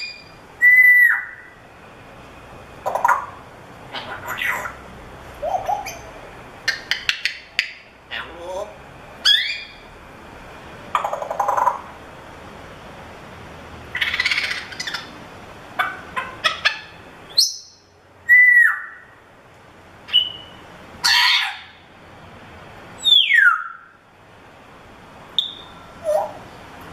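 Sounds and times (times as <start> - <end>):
parrot squawking: 0.0 - 1.6, 2.8 - 9.8, 11.0 - 11.9, 13.9 - 15.2, 15.8 - 19.1, 20.1 - 21.8, 23.0 - 23.9, 25.4 - 26.4
parrot whistling: 0.0 - 1.6, 5.4 - 8.3, 9.2 - 9.8, 15.8 - 19.1, 20.1 - 21.8, 23.0 - 24.0, 25.4 - 26.4.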